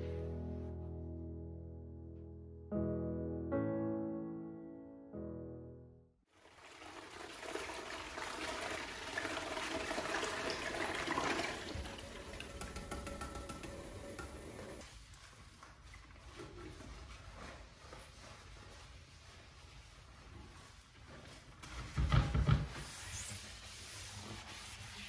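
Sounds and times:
toilet brush scrubbing bowl: 6.6 - 25.0.

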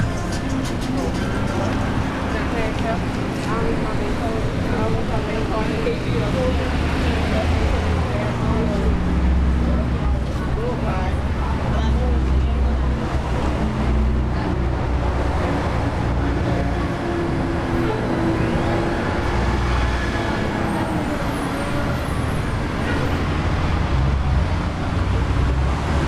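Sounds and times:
low engine drone: 0.0 - 20.8
passing vehicles: 0.0 - 26.0.

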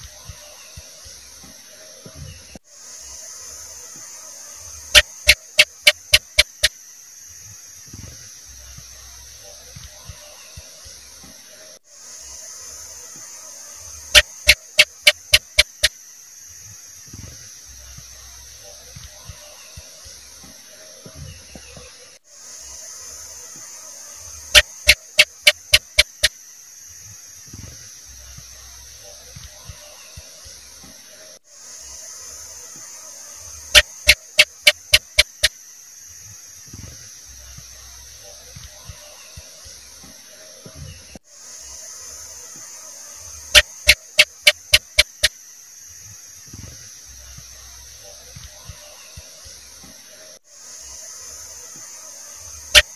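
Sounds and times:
steady hiss: 0.0 - 52.9
gecko chirping: 4.9 - 6.7, 14.1 - 15.9, 24.5 - 26.3, 33.7 - 35.5, 43.5 - 45.3.

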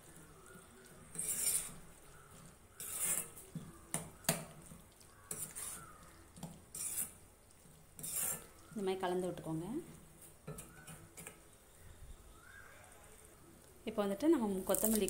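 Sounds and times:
spatula scraping metal pan: 0.9 - 3.7, 5.3 - 7.2, 7.9 - 8.7.

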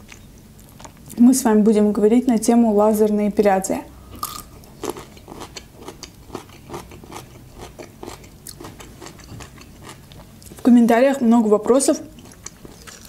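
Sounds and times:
crunchy chewing of gherkin: 4.2 - 10.7, 12.1 - 13.0.

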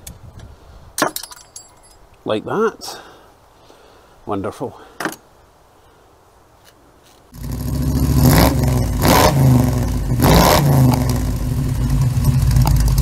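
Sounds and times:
engine revving: 7.4 - 13.0.

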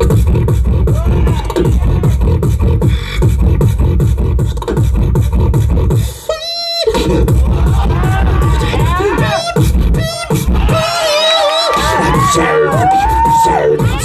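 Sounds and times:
beatboxing through speakers: 0.0 - 14.0.

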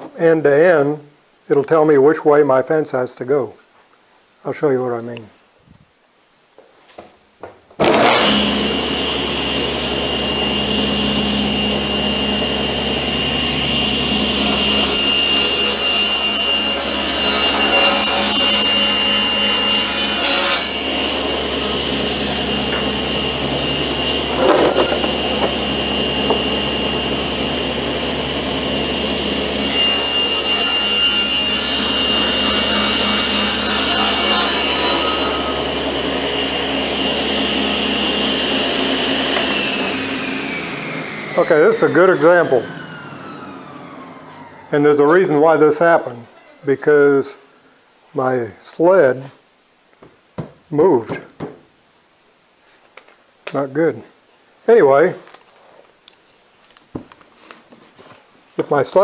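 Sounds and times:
table saw cutting plywood: 7.8 - 46.6.

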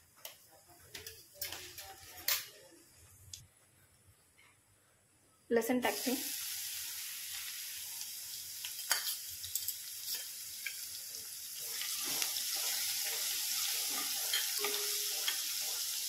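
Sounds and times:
spoon stirring and scraping pan: 0.2 - 2.6, 8.6 - 11.0, 11.6 - 16.0
garlic sizzling in hot oil: 5.8 - 16.0.

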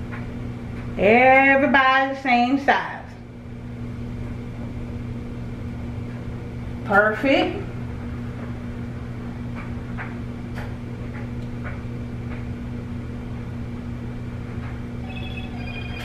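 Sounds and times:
low electrical hum: 0.0 - 16.0
phone ringing: 15.0 - 16.0.

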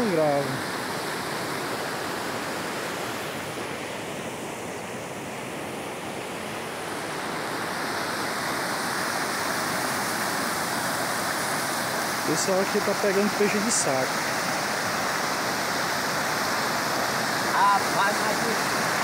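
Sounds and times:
water rushing over spillway: 0.0 - 19.0.

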